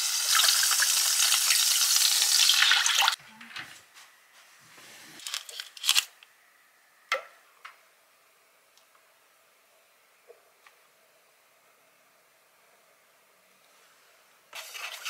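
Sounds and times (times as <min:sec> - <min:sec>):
water sizzling in hot pan: 0:00.0 - 0:03.2.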